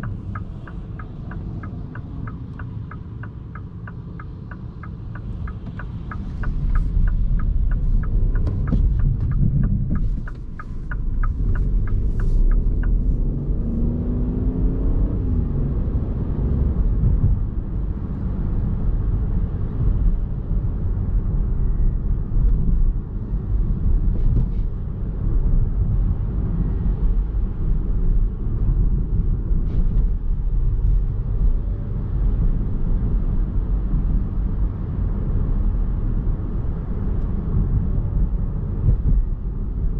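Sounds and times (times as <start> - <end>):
turn signal ticking: 0.0 - 14.5
car cabin road rumble: 0.0 - 39.9.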